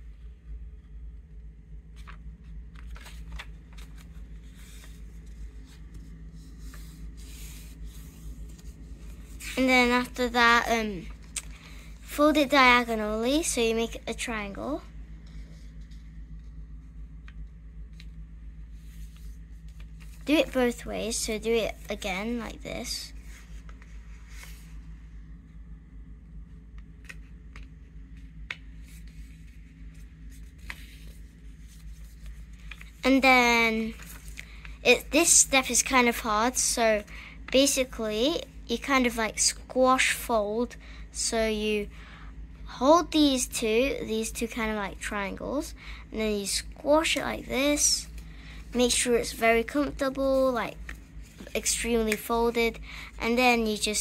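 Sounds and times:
low hum: 0.0s - 44.1s, 44.8s - 54.0s
paper rustling and crackling: 1.9s - 10.1s, 27.0s - 34.7s
paper folding crackles: 1.9s - 24.8s, 26.8s - 39.0s, 47.0s - 54.0s.

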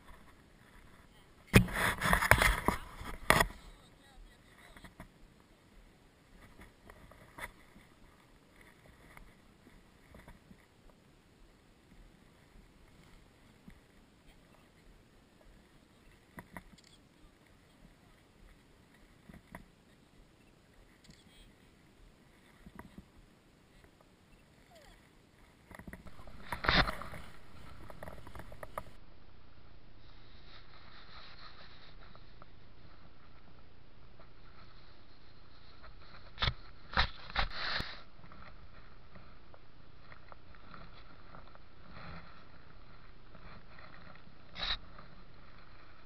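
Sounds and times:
fur rubbing on microphone: 26.0s - 29.0s, 30.0s - 39.3s.

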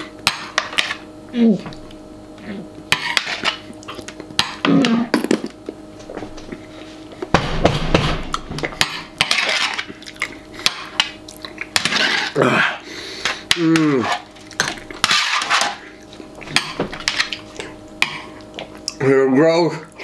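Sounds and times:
metal spoon scraping baking sheet: 8.8s - 9.9s, 11.8s - 12.4s, 15.0s - 15.8s
eating and gulping noises: 9.8s - 12.6s.

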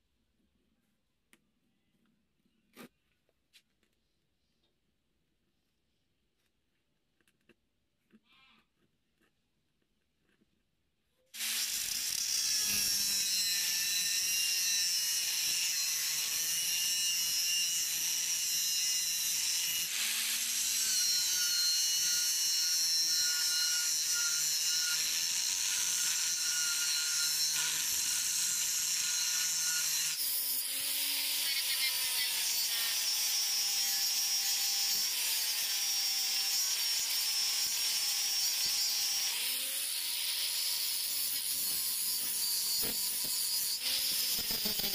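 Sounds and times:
angle grinder cutting steel: 11.4s - 44.9s.

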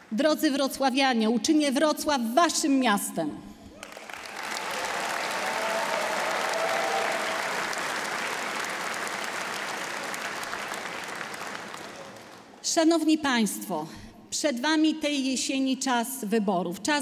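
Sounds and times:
large audience applauding: 3.7s - 12.6s.

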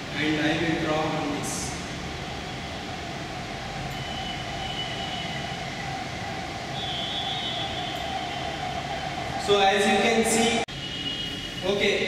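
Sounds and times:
faint high whine: 0.0s - 12.0s
mechanical room drone: 0.0s - 12.0s.

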